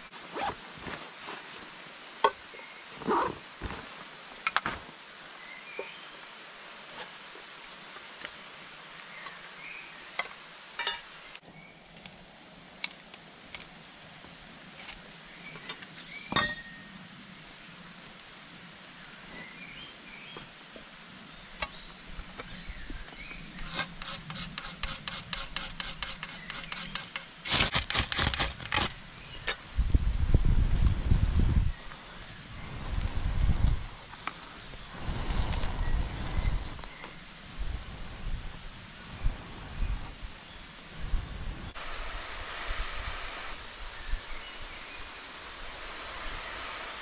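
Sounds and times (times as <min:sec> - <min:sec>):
quick rasping scrapes: 0:23.5 - 0:29.0.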